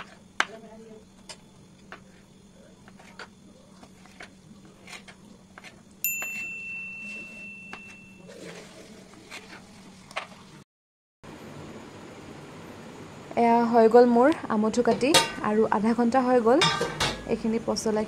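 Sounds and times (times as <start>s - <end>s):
metallic ding: 6.0s - 8.3s.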